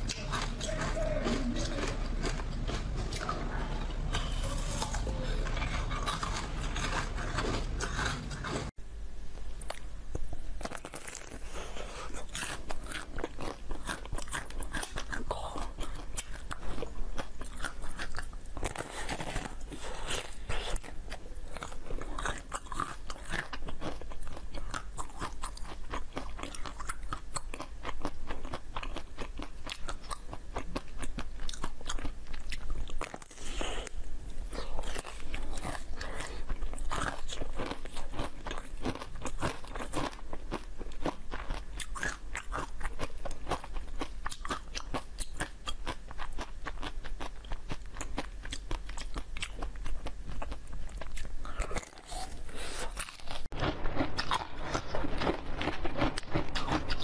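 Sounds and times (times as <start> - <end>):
crunching hard dessert shell: 0.0 - 8.8.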